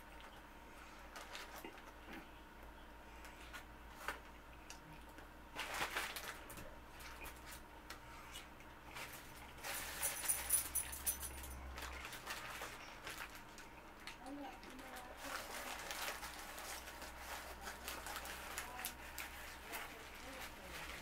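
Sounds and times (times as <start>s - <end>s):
paper wrapper crinkling: 1.1s - 1.9s, 5.6s - 7.6s, 11.6s - 21.0s.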